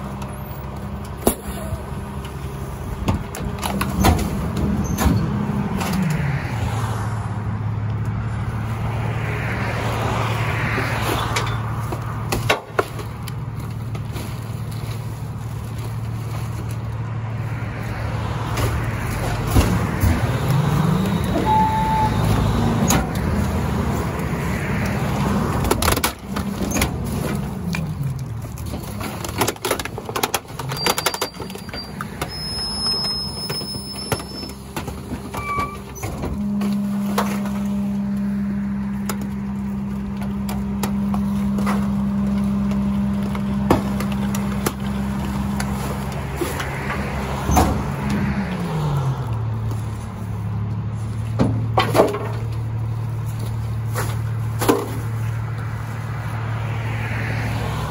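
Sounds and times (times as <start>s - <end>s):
hydraulic packer compacting trash: 0.0s - 6.2s, 17.8s - 50.3s, 50.9s - 55.4s
garbage truck engine revving: 0.0s - 57.9s.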